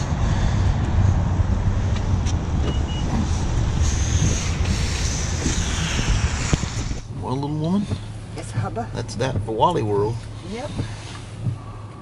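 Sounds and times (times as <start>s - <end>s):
wind on microphone: 0.0s - 7.3s.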